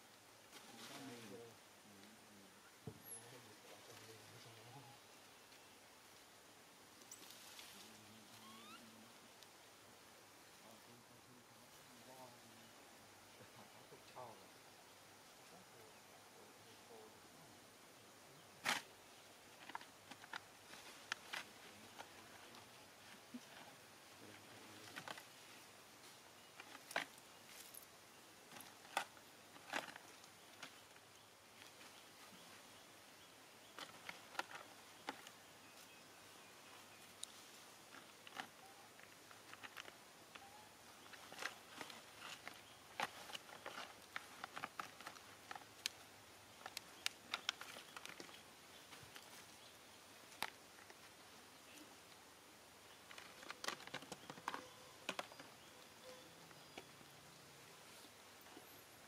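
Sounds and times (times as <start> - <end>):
faint steady hiss: 0.0 - 59.0
monkeys moving over dry leaves: 0.5 - 1.5, 7.0 - 8.9, 18.6 - 32.8, 33.7 - 52.2, 52.9 - 58.8
monkey picking through dry leaves: 7.1 - 8.8.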